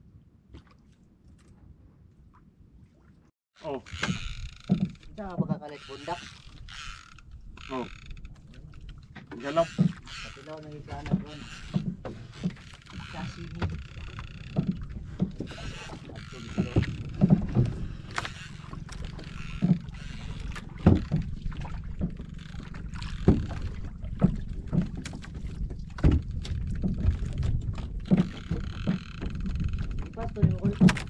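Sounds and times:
water slapping against boat hull: 0:00.5 - 0:31.0
wind rumble on microphone: 0:10.9 - 0:31.0.

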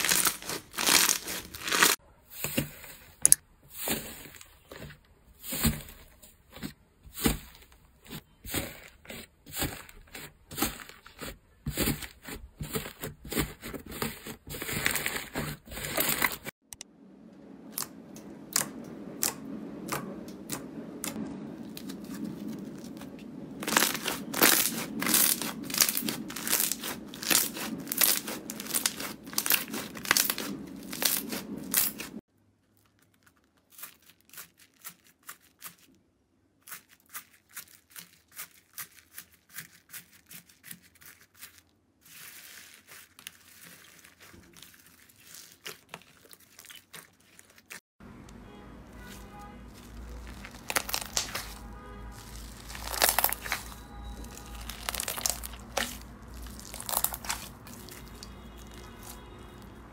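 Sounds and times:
slime crackling and popping: 0:00.0 - 0:02.0, 0:18.5 - 0:35.9, 0:36.6 - 0:47.8, 0:49.0 - 0:59.8.

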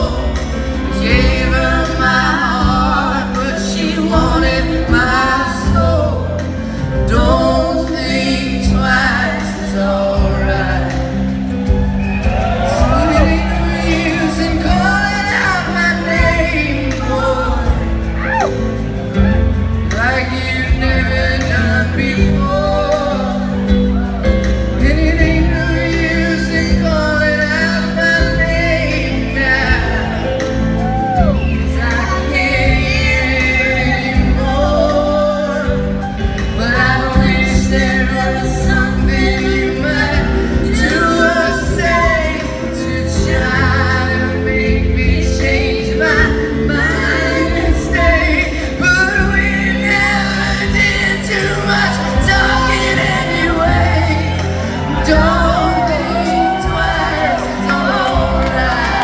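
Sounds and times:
group singing: 0:00.0 - 0:06.4, 0:12.1 - 0:18.4, 0:31.8 - 0:59.0
electric guitar: 0:00.0 - 0:59.0
steady bass: 0:00.0 - 0:59.0.

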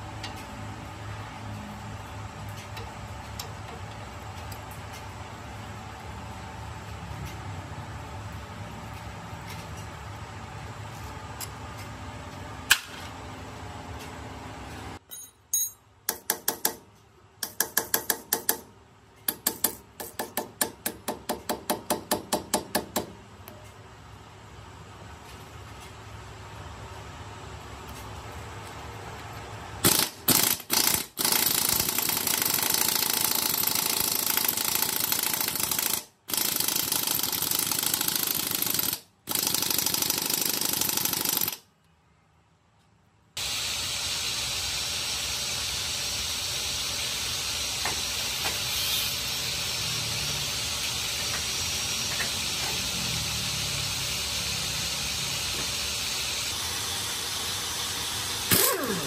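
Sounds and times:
pneumatic impact wrench: 0:29.8 - 0:41.7, 0:43.4 - 0:59.0
air hiss: 0:43.4 - 0:56.4.

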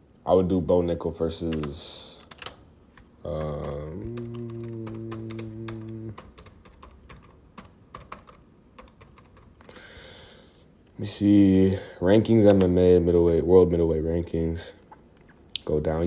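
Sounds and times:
man's drawn-out filler vocalisation: 0:03.2 - 0:06.4.

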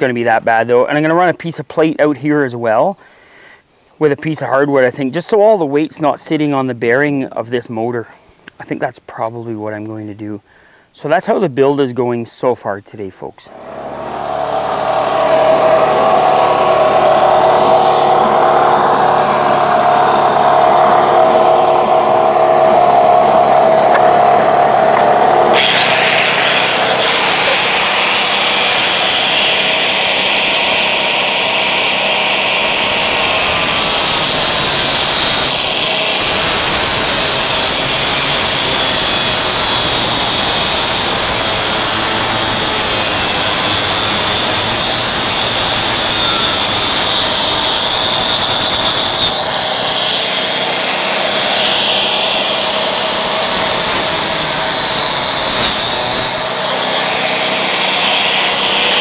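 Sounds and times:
angle grinder grinding steel: 0:13.5 - 0:59.0.

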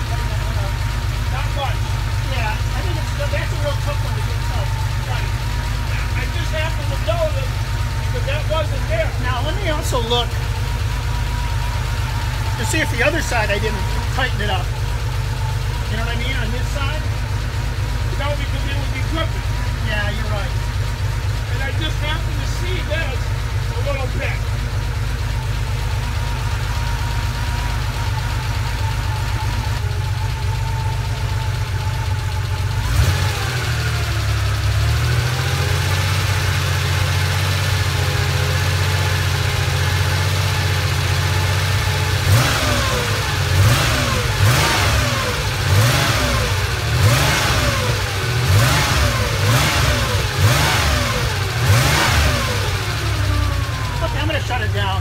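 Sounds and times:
car engine idling: 0:00.0 - 0:55.0
engine revving in blips: 0:31.4 - 0:55.0.

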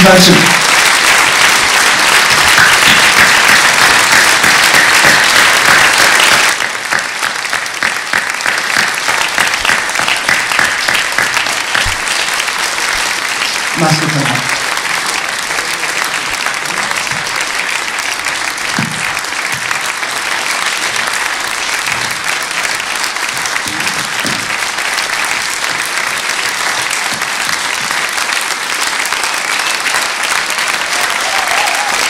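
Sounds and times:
audience applauding: 0:00.0 - 0:32.0.

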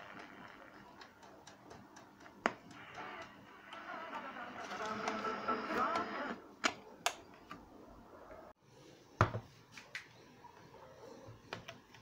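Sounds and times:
radio broadcast from small speaker: 0:02.7 - 0:06.5.

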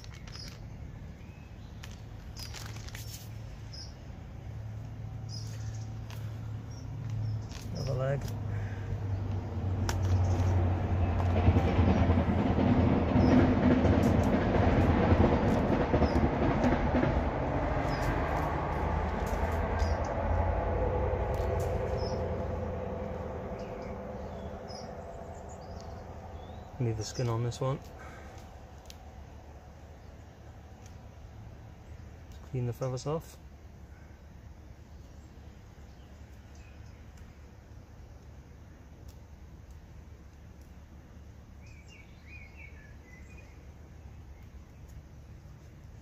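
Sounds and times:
crackling and rustling handling: 0:00.0 - 0:00.9, 0:01.6 - 0:03.6, 0:05.4 - 0:08.4
small bird chirping: 0:00.0 - 0:04.1, 0:05.2 - 0:08.7, 0:17.8 - 0:18.2, 0:19.7 - 0:20.2, 0:21.6 - 0:22.3, 0:23.4 - 0:29.0, 0:41.6 - 0:46.0
low rumble of passing vehicle: 0:00.0 - 0:46.0.

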